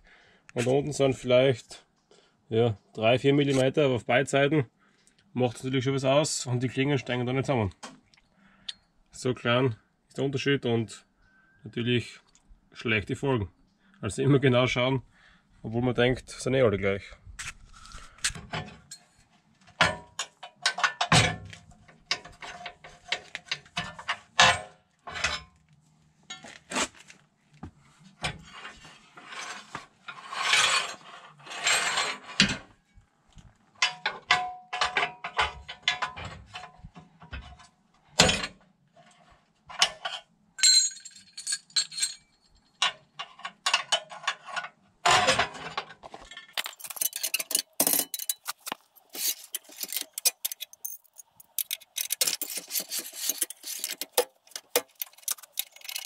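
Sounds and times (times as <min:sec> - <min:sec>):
steel blades clinking and scraping: 0:39.9 - 0:42.6, 0:46.4 - 0:56.0.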